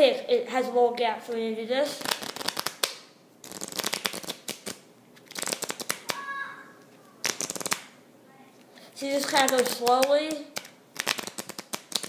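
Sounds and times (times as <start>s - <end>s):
playing cards riffled: 2.0s - 6.3s, 7.2s - 8.0s, 9.3s - 12.0s.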